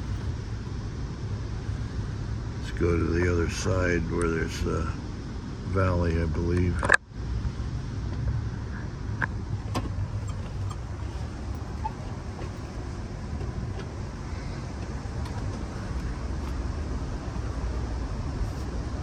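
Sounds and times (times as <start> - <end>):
train coach rumble from inside: 9.6 - 19.0.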